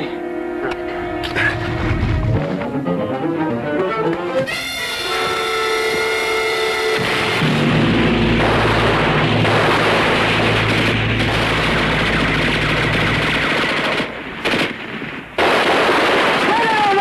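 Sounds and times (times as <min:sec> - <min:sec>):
low steady drone: 0:00.0 - 0:04.1, 0:06.4 - 0:14.6
rapid machine-gun fire: 0:07.0 - 0:17.0.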